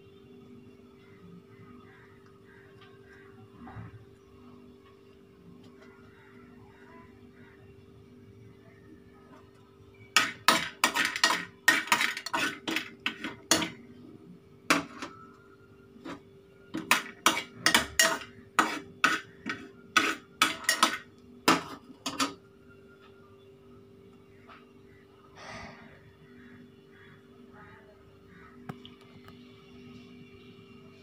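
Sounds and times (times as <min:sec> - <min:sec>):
metal spoon scraping steel pot: 0:10.2 - 0:13.8, 0:14.7 - 0:15.2, 0:16.0 - 0:22.4.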